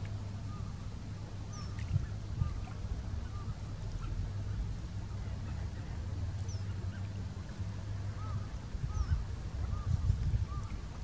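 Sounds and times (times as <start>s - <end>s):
steady low rumble: 0.0s - 11.0s
waterbirds calling: 0.0s - 11.0s.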